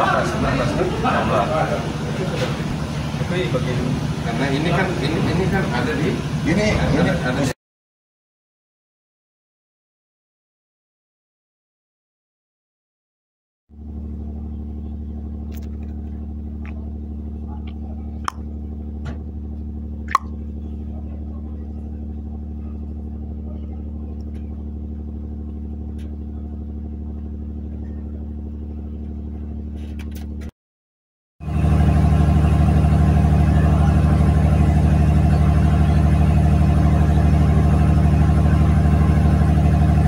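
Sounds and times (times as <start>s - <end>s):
ship engine running: 0.0s - 7.5s, 31.4s - 40.0s.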